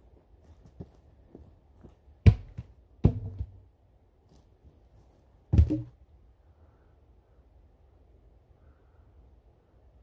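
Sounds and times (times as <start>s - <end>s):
logs knocking onto logs: 2.2s - 3.7s, 5.5s - 6.0s.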